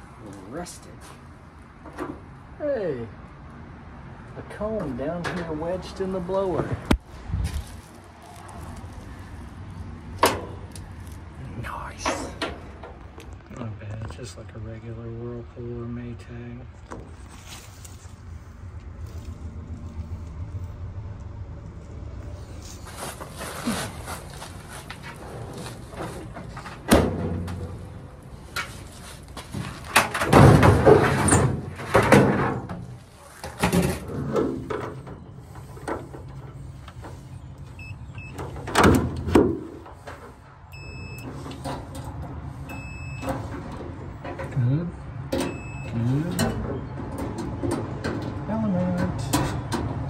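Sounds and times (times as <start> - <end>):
metal knocks and clanks: 29.5 - 37.1, 46.3 - 50.0.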